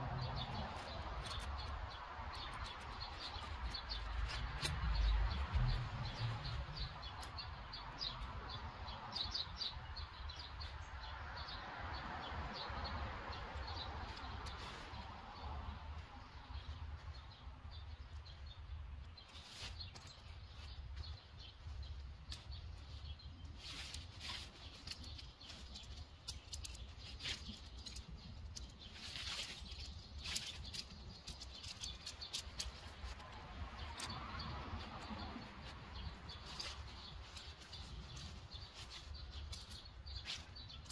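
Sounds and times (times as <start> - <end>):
tent fabric rustling: 19.2 - 28.1.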